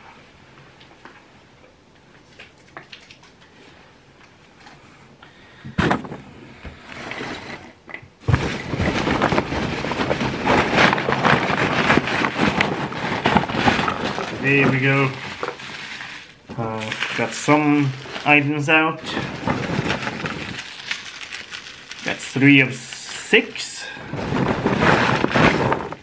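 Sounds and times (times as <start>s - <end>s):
paper and plastic rustling: 8.2s - 26.0s.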